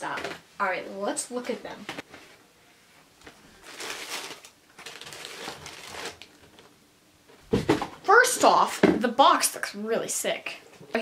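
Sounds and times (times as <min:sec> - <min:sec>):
tissue paper rustling: 0:03.5 - 0:06.4.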